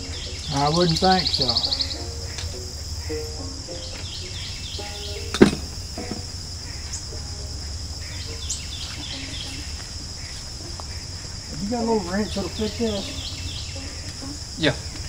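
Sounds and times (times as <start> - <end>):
faint bird chirps: 0.0 - 15.0
insects trilling: 0.0 - 15.0
sharp knock: 5.3 - 6.3.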